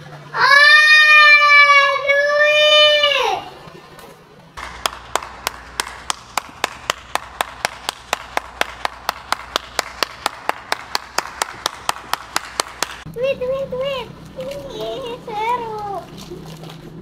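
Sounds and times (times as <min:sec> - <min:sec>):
person clapping hands: 0:04.6 - 0:13.1.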